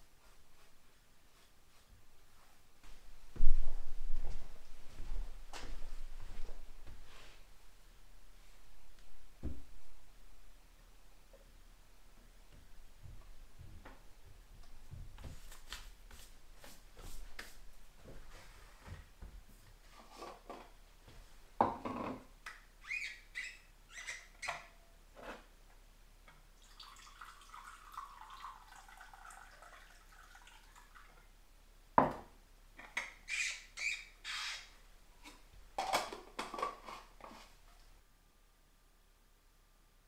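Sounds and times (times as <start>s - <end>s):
flask screw cap squeaking and clicking: 22.8s - 24.7s, 33.0s - 34.7s
coffee pouring into a mug: 26.6s - 31.2s.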